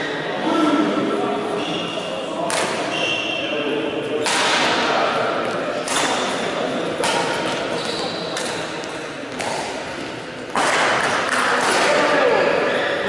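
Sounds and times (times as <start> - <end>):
racket hitting shuttlecock: 2.5 - 2.9, 4.2 - 12.0.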